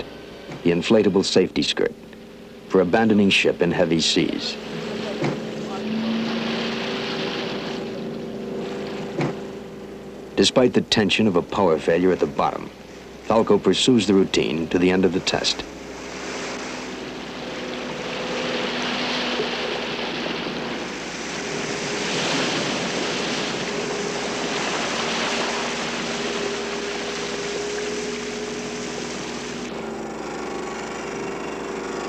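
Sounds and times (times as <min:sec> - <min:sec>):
faint steady low tones: 0:00.0 - 0:22.0
sea waves washing: 0:00.0 - 0:32.0.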